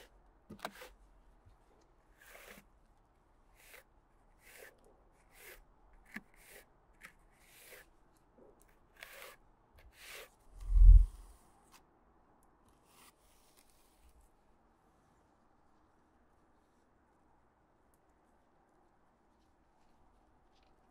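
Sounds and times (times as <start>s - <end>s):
spatula scraping putty: 4.4s - 7.9s, 9.0s - 11.0s.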